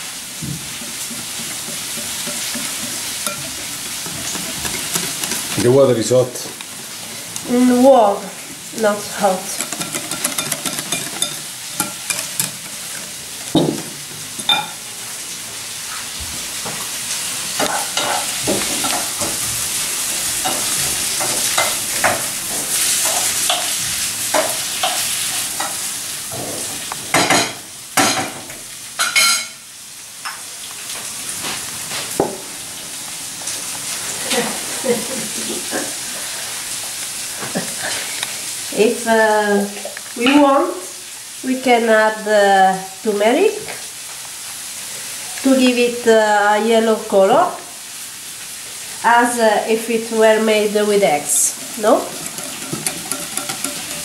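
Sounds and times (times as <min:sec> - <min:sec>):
vegetables sizzling in a pan: 0:00.0 - 0:54.0
utensil scraping and tapping pan: 0:00.4 - 0:05.9, 0:09.5 - 0:14.8, 0:51.6 - 0:54.0.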